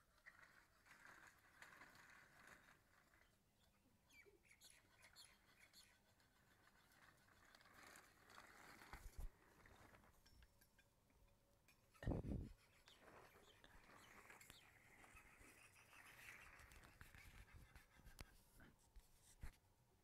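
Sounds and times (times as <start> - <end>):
faint scraping: 4.7 - 10.9, 11.7 - 19.6.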